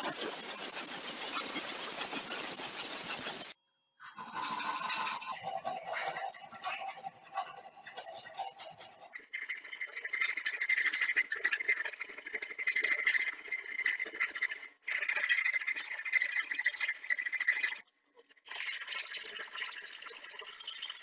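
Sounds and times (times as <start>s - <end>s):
file rasping on knife blade: 0.0s - 3.6s, 4.2s - 11.6s.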